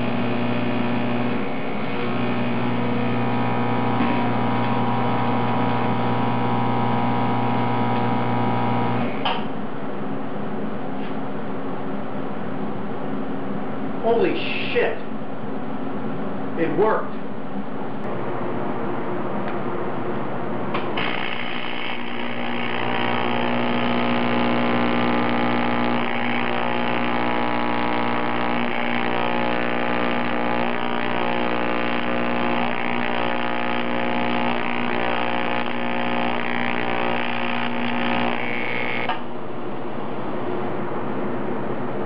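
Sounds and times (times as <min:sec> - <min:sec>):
welding arc buzzing: 0:00.0 - 0:09.5, 0:20.7 - 0:39.4.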